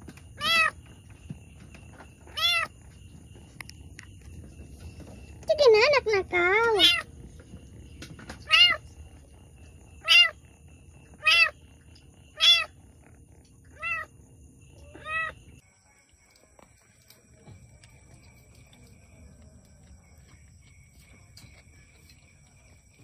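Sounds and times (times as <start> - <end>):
cat meowing: 0.4 - 0.8, 2.3 - 2.7, 6.7 - 7.1, 8.4 - 8.8, 10.0 - 10.4, 11.2 - 11.6, 12.4 - 12.8, 13.7 - 14.1, 14.9 - 15.4.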